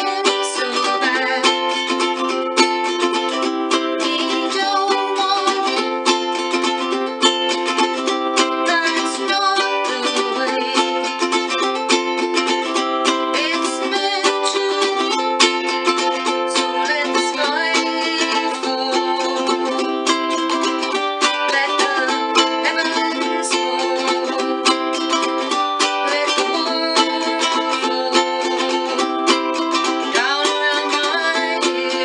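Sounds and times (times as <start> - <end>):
ukulele strumming: 0.0 - 32.0
woman singing: 0.0 - 32.0.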